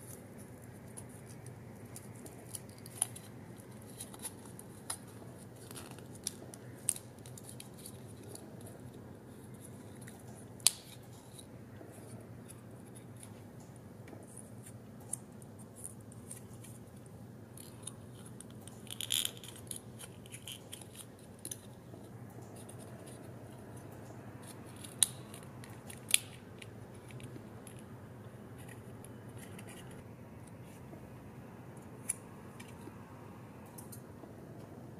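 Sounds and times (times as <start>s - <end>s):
card crinkling and scratching: 0.0s - 30.9s
faint low hum: 0.0s - 34.9s
sharp paper clicks: 23.9s - 27.9s.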